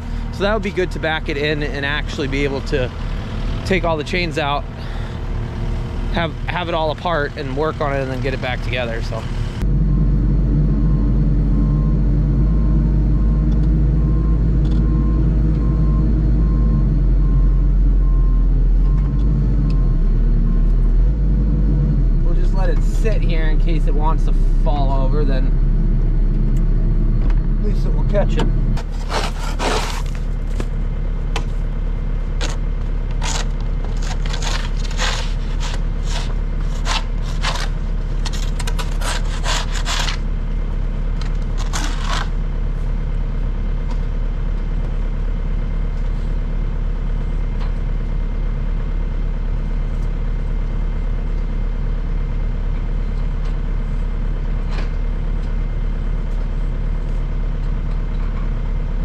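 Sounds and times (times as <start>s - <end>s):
loader engine idling: 0.0s - 59.0s
sharp scrapes and knocks: 28.8s - 30.7s, 32.4s - 40.2s, 41.5s - 42.4s.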